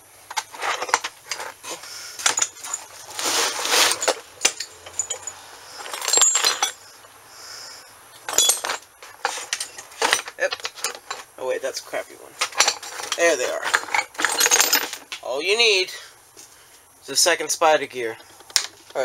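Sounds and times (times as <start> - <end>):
small metal parts clinking: 0.3 - 1.6, 2.2 - 7.1, 8.1 - 11.4, 12.4 - 15.2
hands rummaging through metal parts: 0.3 - 7.1, 8.2 - 11.4, 12.4 - 15.2.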